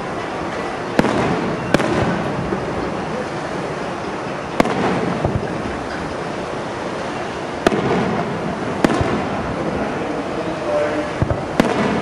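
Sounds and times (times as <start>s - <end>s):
noisy background: 0.0s - 12.0s
firework shells bursting: 4.5s - 6.4s, 7.4s - 9.9s, 11.2s - 12.0s.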